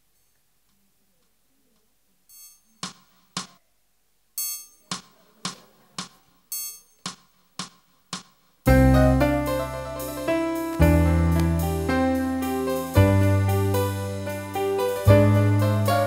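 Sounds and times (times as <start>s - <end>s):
metronome beeps and clicks: 2.3s - 3.0s, 4.4s - 5.1s, 6.5s - 7.2s
piano: 8.7s - 16.0s.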